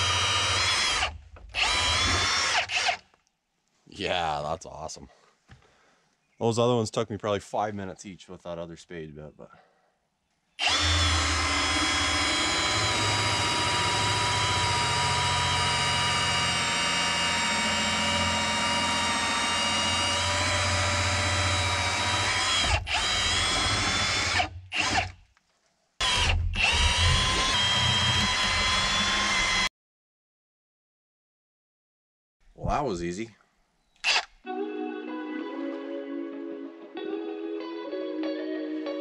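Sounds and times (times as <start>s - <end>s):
cordless drill boring wood: 0.0s - 3.2s, 10.6s - 25.2s, 26.0s - 29.7s, 34.0s - 34.3s.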